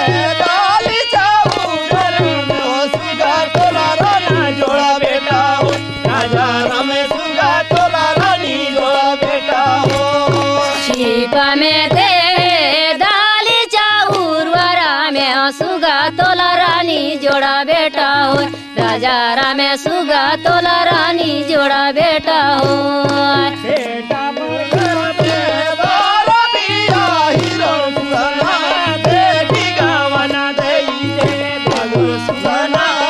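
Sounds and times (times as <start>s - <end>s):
hand drum beating: 0.0s - 8.5s, 24.7s - 32.9s.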